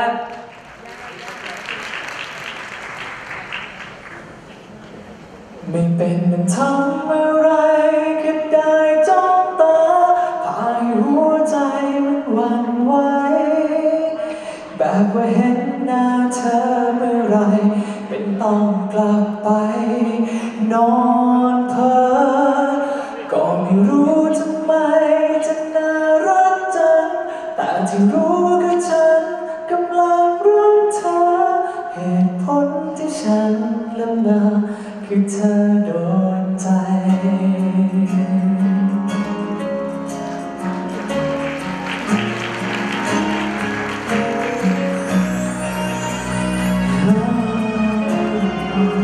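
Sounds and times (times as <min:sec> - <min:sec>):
man singing into a microphone: 0:05.7 - 0:39.4, 0:46.9 - 0:49.0
instrumental accompaniment: 0:38.2 - 0:49.0.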